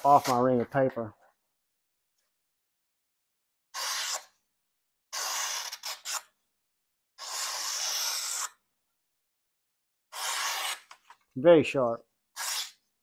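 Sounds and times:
knife slicing paper: 3.8 - 4.4, 5.2 - 6.4, 7.2 - 8.6, 10.1 - 11.0, 12.3 - 12.8.

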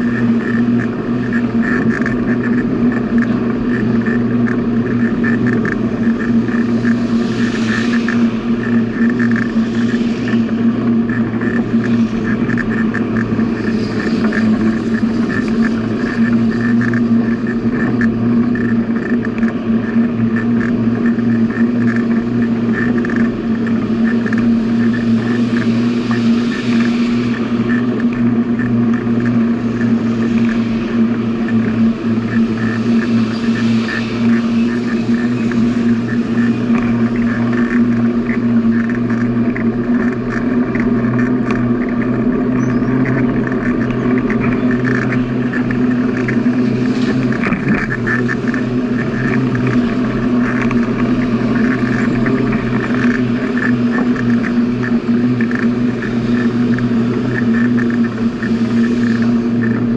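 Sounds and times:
mechanical hum: 0.0 - 59.9
rushing noise: 0.0 - 59.9.

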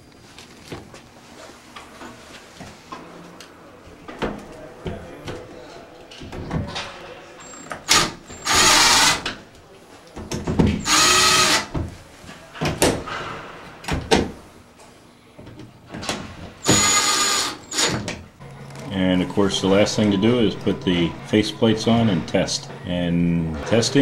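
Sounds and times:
power drill motor whining: 7.8 - 9.2, 10.8 - 11.7, 16.6 - 18.0.

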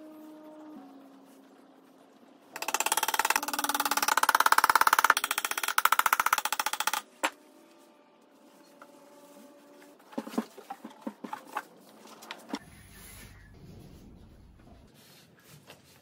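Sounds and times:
small hammer tapping rapidly on wood: 2.6 - 7.0.

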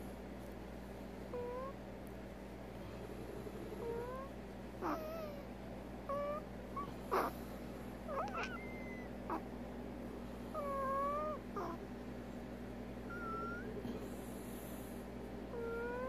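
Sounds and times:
noisy animal breathing: 2.6 - 9.5, 13.1 - 16.0
squeaky whistling breaths: 13.1 - 14.1.

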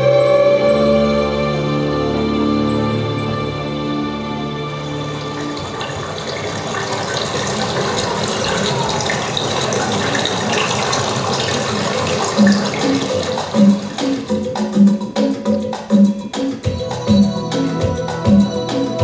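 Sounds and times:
rushing river water: 4.6 - 16.6
music with percussion: 12.2 - 19.0.

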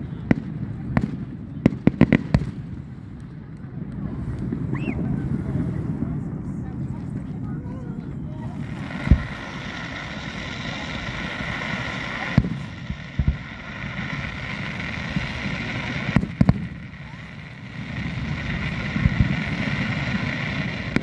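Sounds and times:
crowd noise: 0.0 - 21.0
fireworks booming: 0.0 - 21.0
fountain firework hiss: 0.0 - 21.0.

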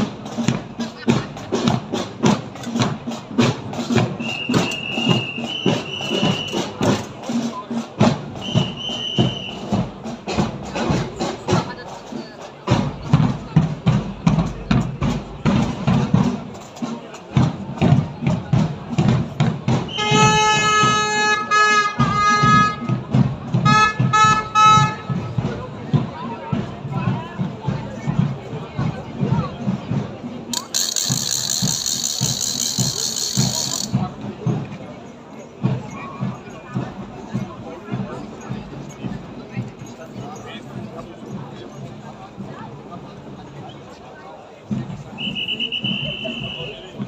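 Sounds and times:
marching drum beats: 0.0 - 47.0
wind instrument notes: 4.2 - 7.5, 8.3 - 10.1, 19.8 - 25.5, 30.5 - 34.0, 45.2 - 47.0.

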